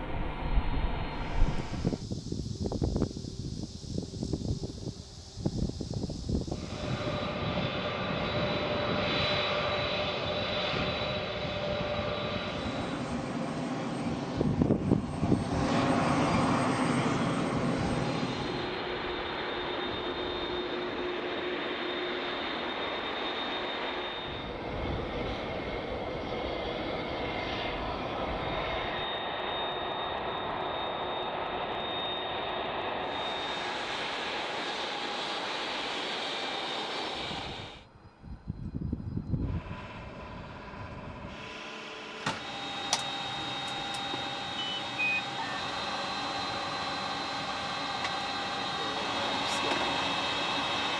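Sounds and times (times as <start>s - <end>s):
jet engines rumbling with high whine: 0.0s - 50.9s.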